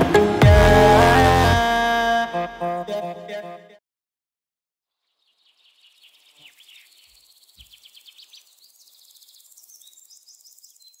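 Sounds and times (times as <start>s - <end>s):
birds chirping: 5.1s - 11.0s
insect hiss: 5.4s - 11.0s.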